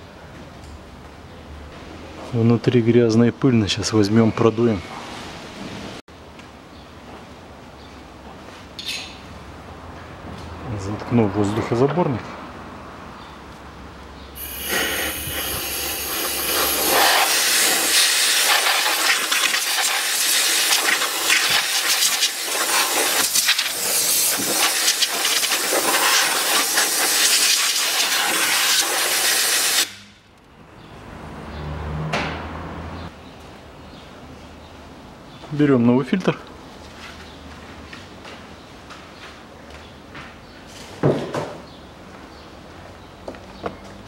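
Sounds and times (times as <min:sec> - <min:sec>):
compressed air blow gun hissing: 0:14.4 - 0:30.1.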